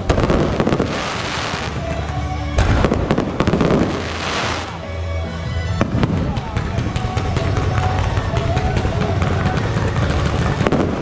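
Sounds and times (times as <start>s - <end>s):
dense crackling of firework stars: 0.0s - 4.8s.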